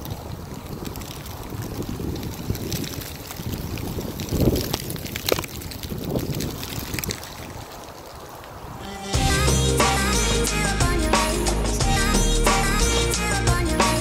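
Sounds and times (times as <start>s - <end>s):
wind buffeting microphone: 0.0s - 9.0s
dry leaves scraping over asphalt: 0.0s - 9.2s.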